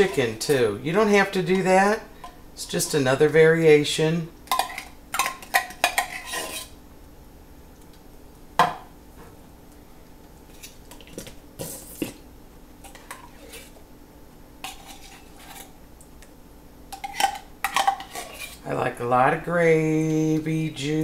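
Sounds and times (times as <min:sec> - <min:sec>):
metal spoon scraping in a can: 0:05.6 - 0:06.8, 0:12.8 - 0:13.8, 0:14.6 - 0:15.8, 0:17.0 - 0:18.6.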